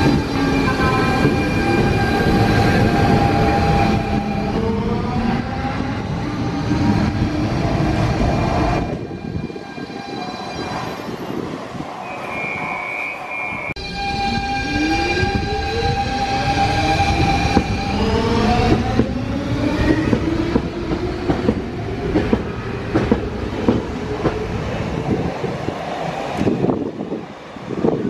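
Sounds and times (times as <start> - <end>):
train wheels clicking over rail joints: 20.0 - 24.4.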